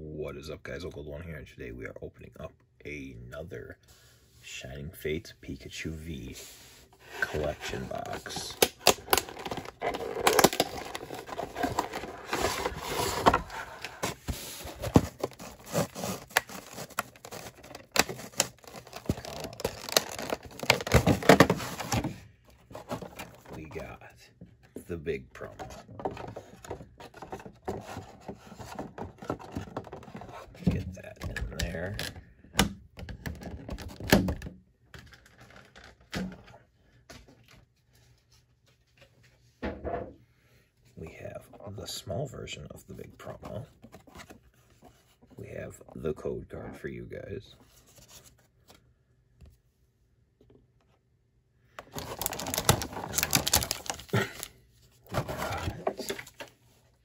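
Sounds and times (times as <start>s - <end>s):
plastic crackling against cardboard: 7.0s - 23.9s, 51.8s - 56.6s.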